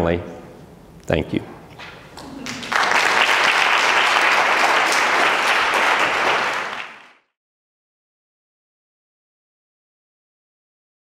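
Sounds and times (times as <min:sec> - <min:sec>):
audience applauding: 0:02.1 - 0:07.3.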